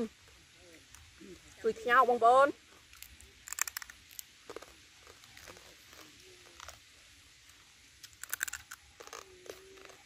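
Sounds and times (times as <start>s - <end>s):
crab shells cracking: 2.8s - 6.9s, 8.0s - 10.0s.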